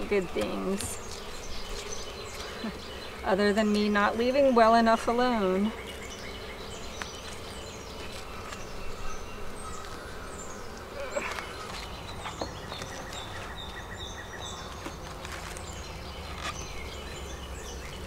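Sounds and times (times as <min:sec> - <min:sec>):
hive tool clicking and scraping: 0:00.0 - 0:02.7, 0:10.7 - 0:13.9, 0:14.6 - 0:17.3
honeybees humming: 0:00.0 - 0:18.0.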